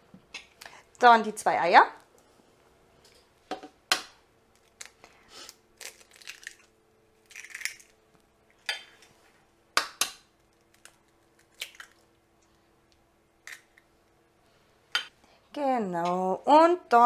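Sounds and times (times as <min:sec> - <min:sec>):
eggs tapped and shells cracking: 0:05.8 - 0:09.1, 0:09.7 - 0:13.9.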